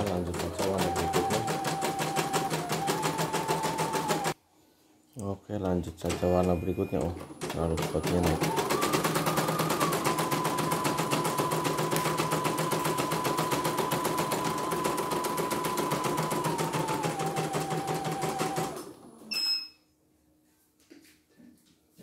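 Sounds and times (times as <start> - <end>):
embroidery machine stitching: 0.0 - 4.4, 6.0 - 19.3
short beep: 6.4 - 7.0, 19.3 - 20.0.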